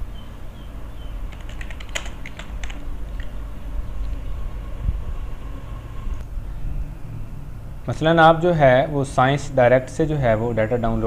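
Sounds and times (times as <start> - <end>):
steady low hum: 0.0 - 11.0
keyboard typing: 1.3 - 3.4.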